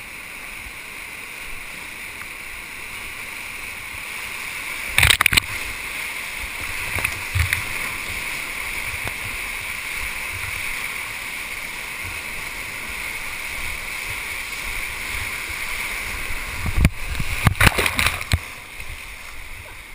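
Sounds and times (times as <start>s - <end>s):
whitewater rushing: 0.0s - 19.9s
splashes and knocks: 4.9s - 5.6s, 16.6s - 18.6s.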